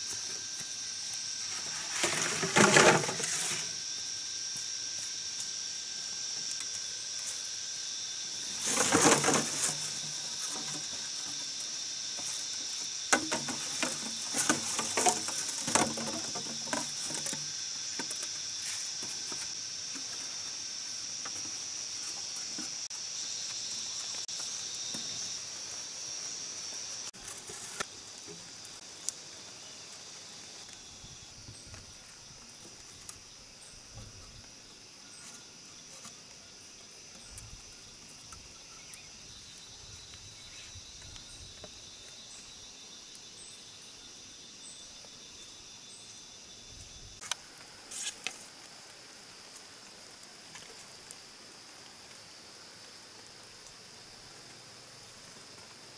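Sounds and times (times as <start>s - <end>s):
insects buzzing: 0.0s - 55.9s
bamboo poles knocking: 13.1s - 18.3s.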